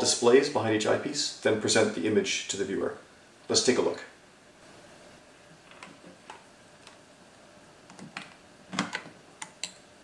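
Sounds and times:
plastic clicks and knocks: 0:07.9 - 0:09.7.

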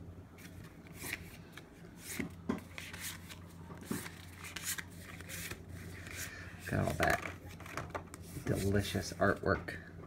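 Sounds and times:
low steady hum: 0:00.0 - 0:10.0
cards rustling and scraping: 0:00.4 - 0:09.6.

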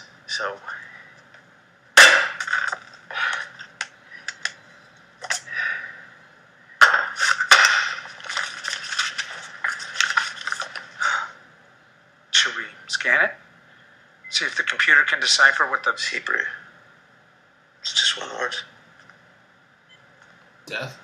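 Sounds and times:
crunching and scraping: 0:06.8 - 0:11.1.

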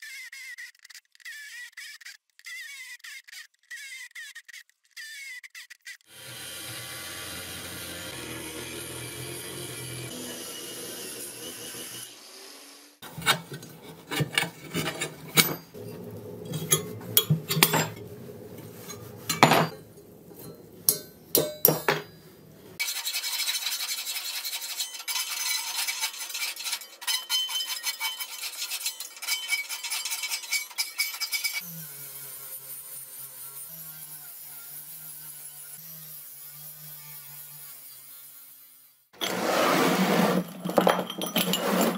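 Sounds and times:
angle grinder cutting steel: 0:06.1 - 0:41.9
metallic clicks and scrapes: 0:13.0 - 0:22.2.

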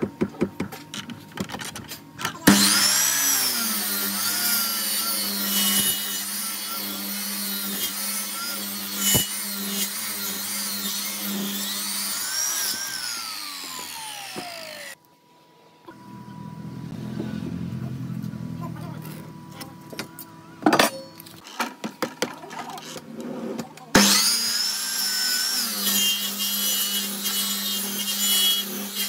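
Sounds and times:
miter saw cutting wood: 0:02.3 - 0:15.0, 0:23.9 - 0:29.0
saw motor winding down: 0:02.4 - 0:15.0, 0:24.0 - 0:26.3.

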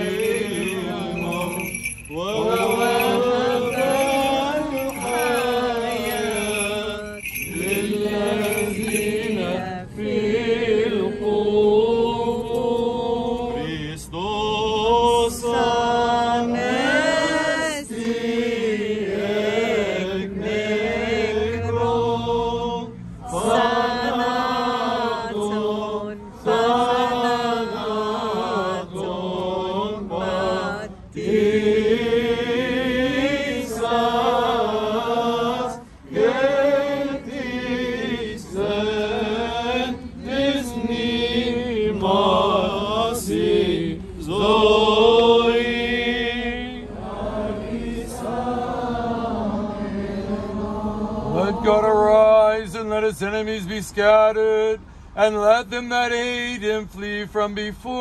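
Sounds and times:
voices chanting: 0:00.0 - 0:52.4
singers breathing: 0:54.8 - 0:55.2.

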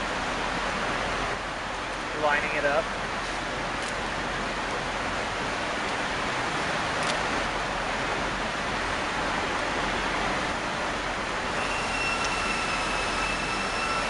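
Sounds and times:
faint high whine: 0:11.6 - 0:14.0.

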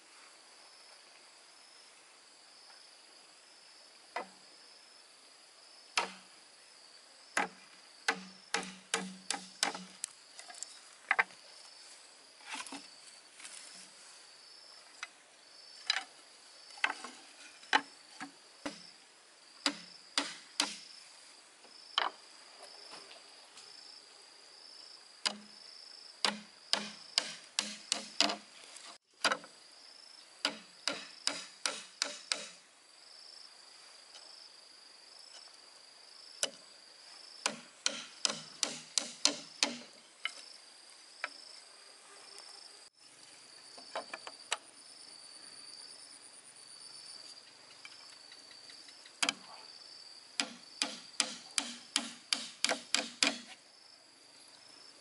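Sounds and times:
pulsing insect chirr: 0:29.3 - 0:55.0.

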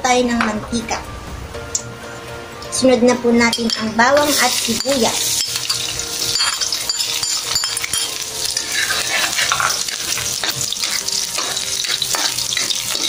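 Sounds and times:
garlic and onion sizzling in oil: 0:03.5 - 0:13.0
metal ladle scraping a pan: 0:03.7 - 0:13.0.

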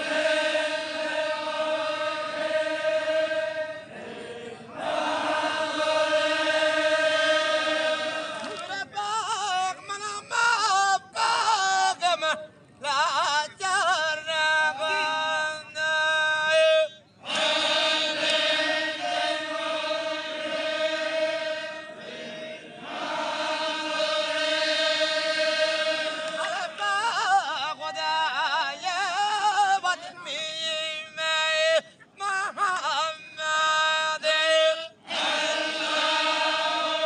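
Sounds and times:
voices chanting: 0:00.0 - 0:09.3, 0:17.2 - 0:28.0, 0:35.0 - 0:37.0.

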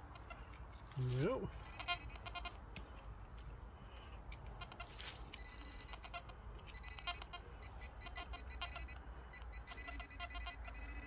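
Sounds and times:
pinpointer probe beeping: 0:01.5 - 0:02.5, 0:04.6 - 0:11.0.

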